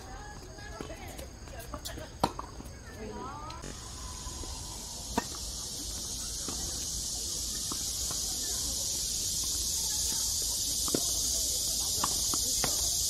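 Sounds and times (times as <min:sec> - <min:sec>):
cicada chorus: 0:00.0 - 0:13.0
tennis balls bouncing: 0:00.3 - 0:03.8, 0:05.0 - 0:05.6, 0:09.4 - 0:12.9
tennis balls hit by rackets: 0:00.4 - 0:03.8, 0:05.0 - 0:05.8, 0:06.4 - 0:06.8, 0:07.5 - 0:08.6, 0:09.4 - 0:13.0.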